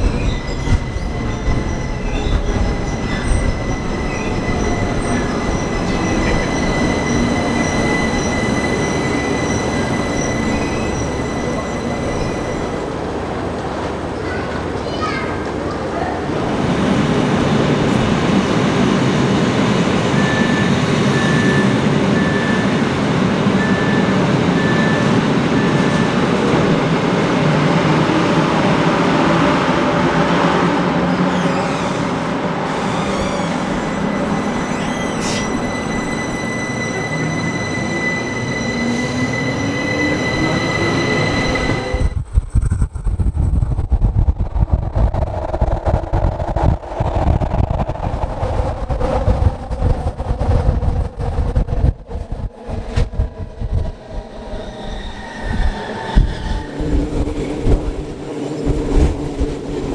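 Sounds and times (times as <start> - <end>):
train wheels rumbling: 0.0 - 59.9
wheel squeal: 32.7 - 42.2
wind buffeting microphone: 41.5 - 59.9.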